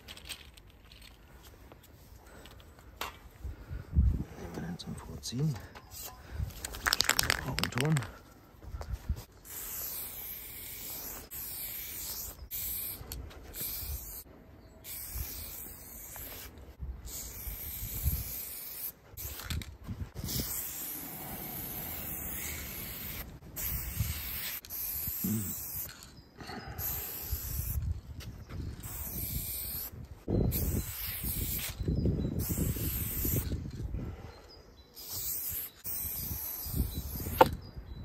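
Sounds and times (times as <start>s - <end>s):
spray paint can hissing: 9.4s - 14.2s, 14.8s - 16.5s, 17.1s - 19.6s, 20.2s - 26.0s, 26.8s - 27.8s, 28.8s - 29.9s, 30.5s - 31.8s, 32.4s - 33.6s, 35.0s - 37.5s.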